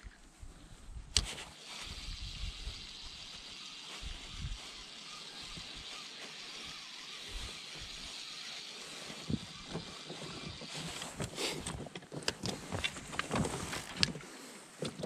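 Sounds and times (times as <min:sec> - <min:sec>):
fishing gear clicking and knocking: 0:09.3 - 0:14.2.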